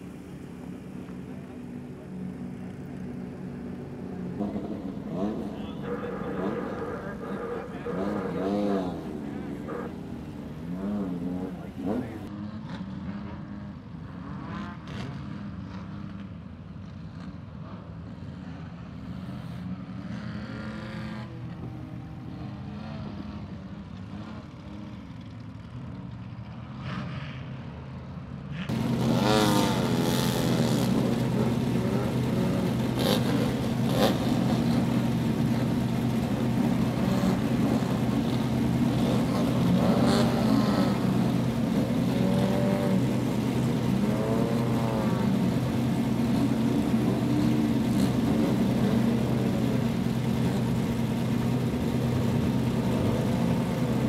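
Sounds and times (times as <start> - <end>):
buggy engines revving: 0.0 - 16.3, 28.6 - 54.0.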